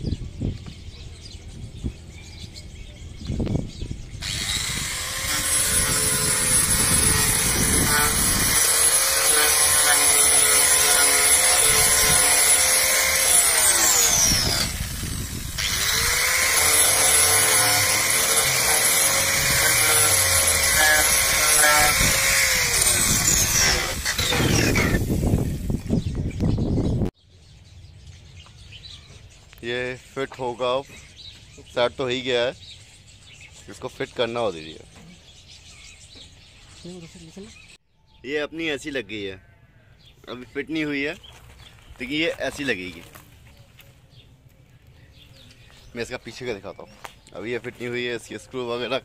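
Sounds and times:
angle grinder cutting plastic: 4.2s - 25.3s.

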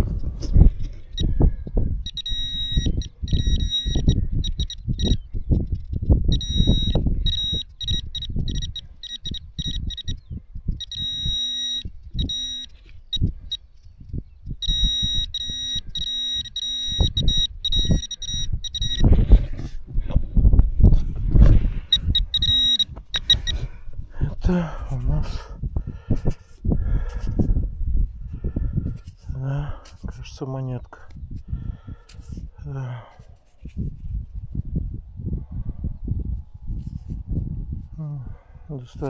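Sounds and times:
metal detector beeping: 0.0s - 19.8s, 21.3s - 23.9s.

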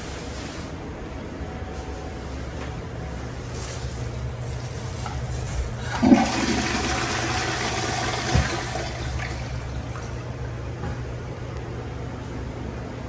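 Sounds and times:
toilet flushing: 5.8s - 10.6s.

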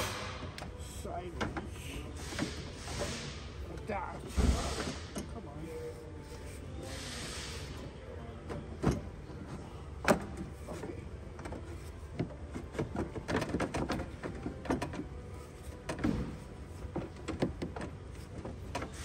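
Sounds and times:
radiator clicking and rubbing on housing: 7.8s - 19.0s.

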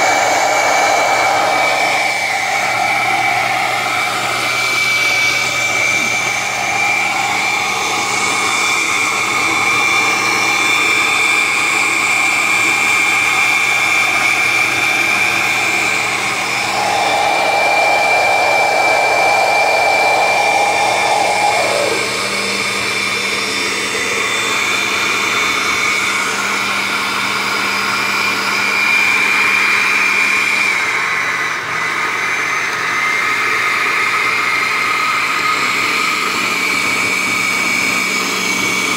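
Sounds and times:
high whine: 0.0s - 10.2s, 14.1s - 25.2s
blender motor running: 0.0s - 38.9s.

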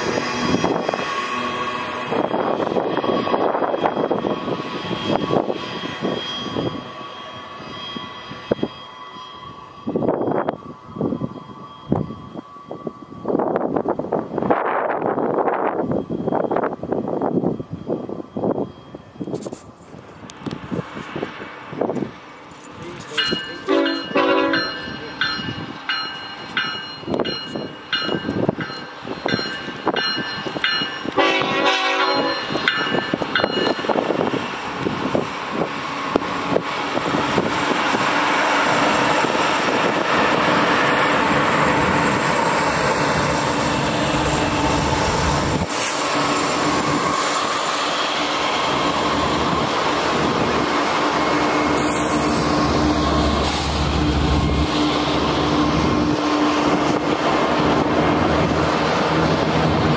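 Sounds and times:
train wheels rumbling on rails: 0.0s - 59.9s
train horn blasts: 23.7s - 24.8s, 31.1s - 32.6s.

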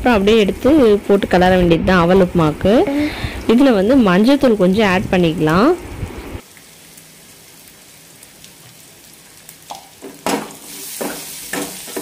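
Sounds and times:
onions sizzling in oil: 0.0s - 12.0s.

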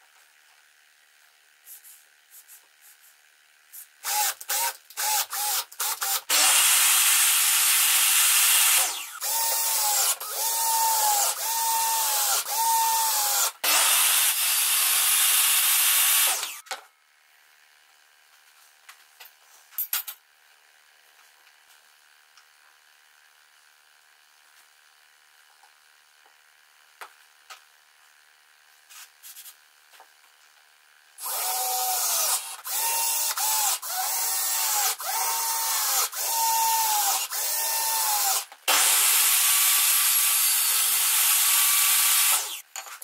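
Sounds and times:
cordless drill whining: 4.0s - 16.6s, 31.2s - 42.6s.

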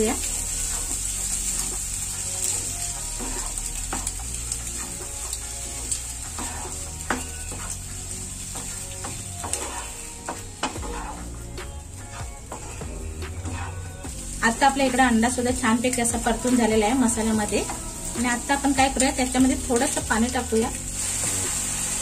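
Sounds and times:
faint sizzle: 0.0s - 22.0s
wooden spatula scraping a pan: 0.3s - 14.2s.

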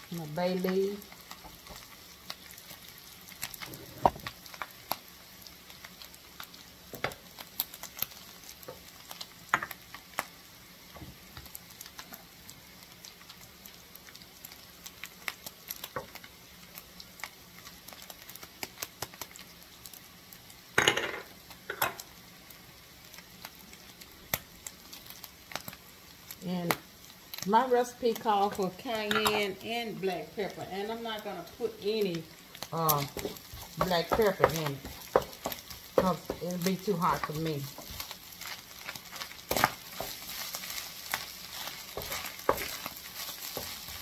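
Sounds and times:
food sizzling in a skillet: 0.0s - 44.0s
utensil scraping pan: 33.0s - 44.0s.

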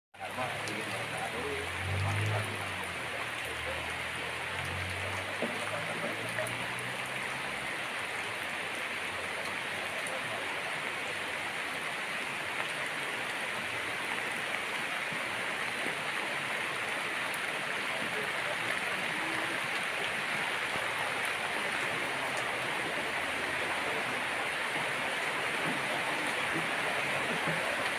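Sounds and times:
rain falling: 0.2s - 27.9s.

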